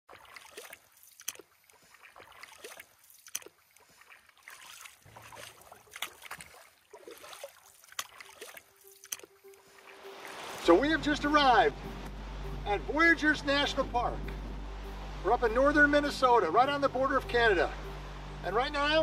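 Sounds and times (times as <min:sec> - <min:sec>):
paddle splash or knock: 0:00.1 - 0:09.3
paddles swishing and dripping: 0:00.1 - 0:12.1.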